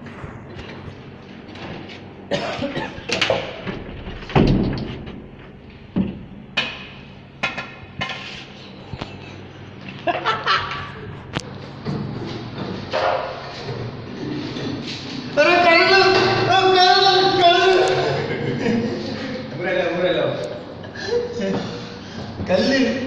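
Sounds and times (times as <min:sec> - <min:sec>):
steady low hum: 0:00.0 - 0:23.0
knocks and bumps: 0:03.6 - 0:06.4.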